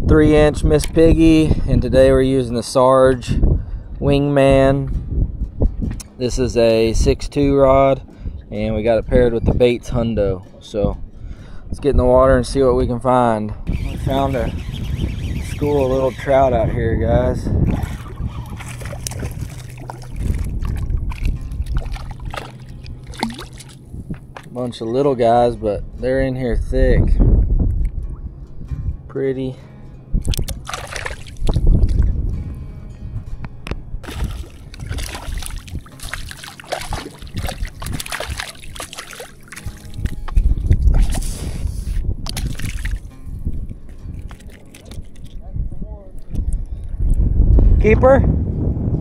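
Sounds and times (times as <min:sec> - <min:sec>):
low rumble: 0:13.5 - 0:24.6
fish splashing in water: 0:17.7 - 0:24.5, 0:30.3 - 0:32.1, 0:34.0 - 0:41.5, 0:42.3 - 0:43.1, 0:44.2 - 0:45.4.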